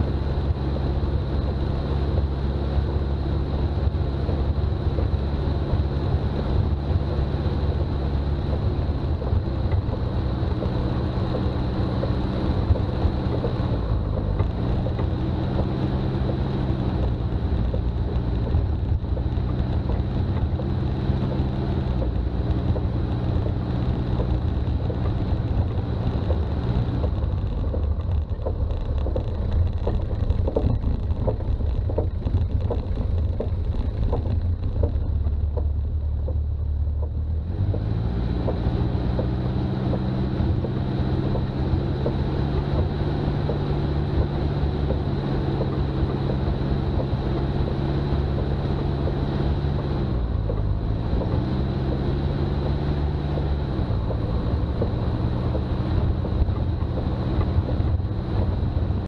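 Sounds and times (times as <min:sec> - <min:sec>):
diesel engine droning: 0:00.0 - 0:59.0
road and wind noise: 0:00.0 - 0:59.0
light ticks pattering: 0:00.1 - 0:59.0.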